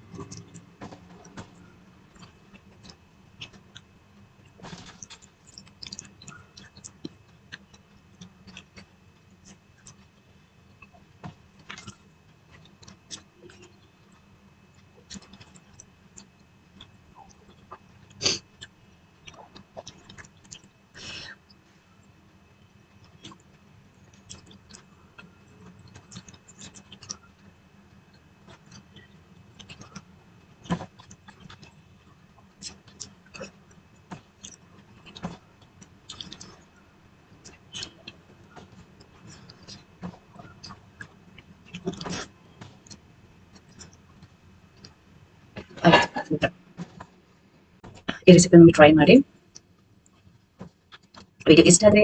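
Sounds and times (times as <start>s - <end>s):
chewing with lip smacks: 0.0s - 20.8s, 22.0s - 45.0s, 49.5s - 51.4s
low steady hum: 0.0s - 52.0s
fingers squishing food: 23.0s - 45.0s.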